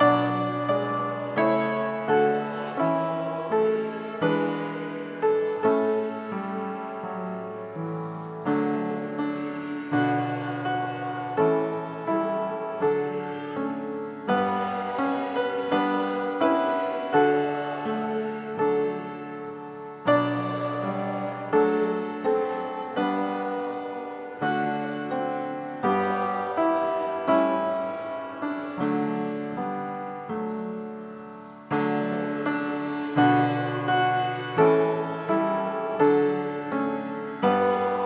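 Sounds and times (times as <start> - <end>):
solo piano playing slow music: 0.0 - 38.0.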